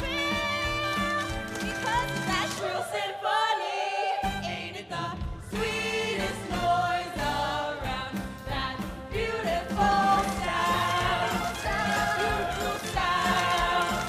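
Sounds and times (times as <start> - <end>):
musical accompaniment: 0.0 - 3.1, 3.7 - 14.0
young voices singing in chorus: 2.6 - 14.0.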